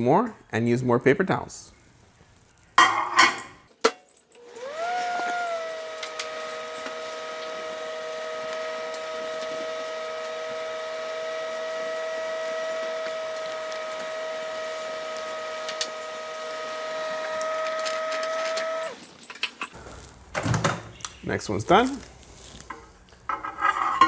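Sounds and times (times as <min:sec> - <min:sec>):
microwave oven humming: 0:04.4 - 0:19.1.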